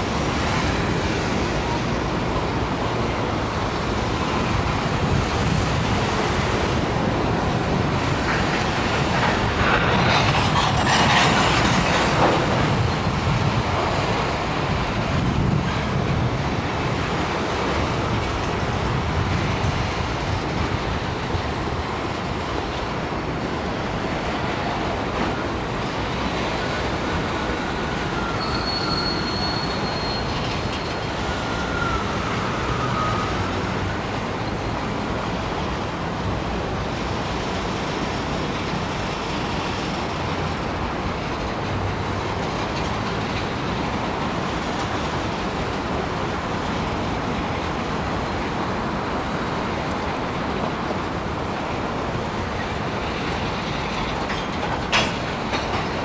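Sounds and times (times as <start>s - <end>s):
train wheels rumbling on rails: 0.0s - 56.0s
wheel squeals: 27.6s - 33.8s.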